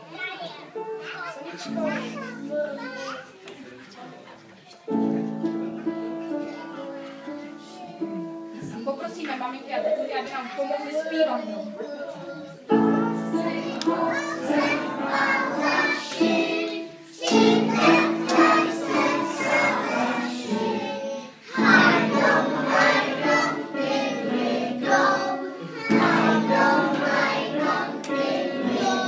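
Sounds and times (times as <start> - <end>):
children singing: 11.8 - 29.0
adults singing: 12.7 - 29.0.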